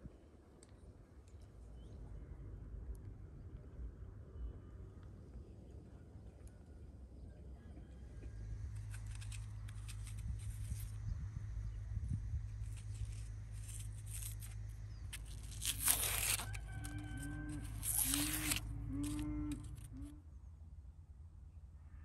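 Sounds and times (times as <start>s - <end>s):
onion skin tearing: 8.8s - 11.0s, 12.5s - 19.9s
low animal calls: 16.4s - 20.2s.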